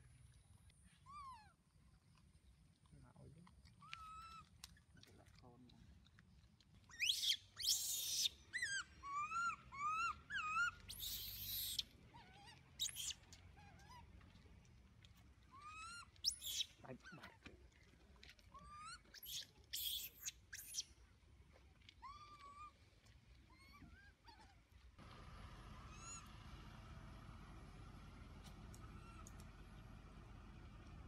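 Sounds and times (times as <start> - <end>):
baby monkey screeching: 3.9 - 4.4, 6.9 - 11.9, 12.8 - 13.2, 15.6 - 16.7, 18.7 - 20.8
baby monkey whimpering coos: 7.0 - 13.8.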